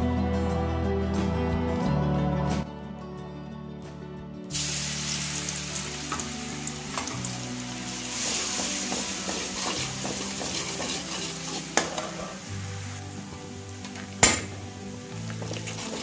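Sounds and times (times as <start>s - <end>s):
garlic sizzling in oil: 4.5s - 16.0s
steel spoon scraping and clinking pan: 8.4s - 12.5s.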